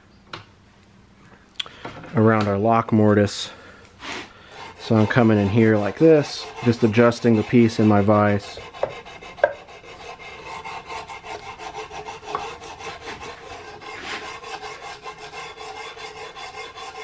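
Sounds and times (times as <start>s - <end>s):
sandpaper rubbing on wood: 4.0s - 17.0s.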